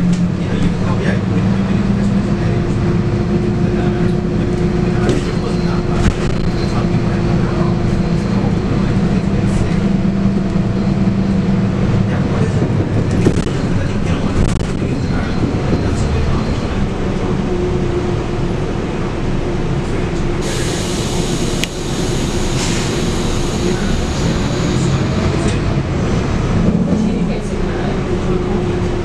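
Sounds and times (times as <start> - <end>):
bus diesel engine running: 0.0 - 29.0
road noise: 0.0 - 29.0.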